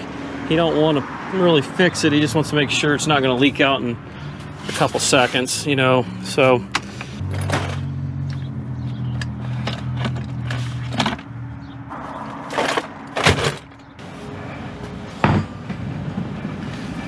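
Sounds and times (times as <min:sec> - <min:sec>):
tools and boxes clunking: 0:06.6 - 0:08.5, 0:09.1 - 0:11.4, 0:12.2 - 0:14.0, 0:15.2 - 0:16.5.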